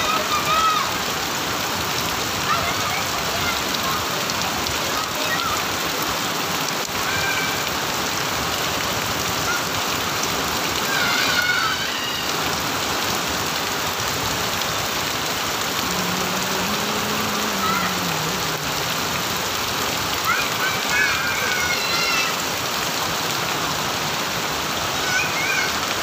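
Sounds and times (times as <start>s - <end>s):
heavy rain on muddy ground: 0.0s - 26.0s
high-pitched shout: 10.8s - 12.3s, 15.8s - 18.6s, 20.2s - 22.4s.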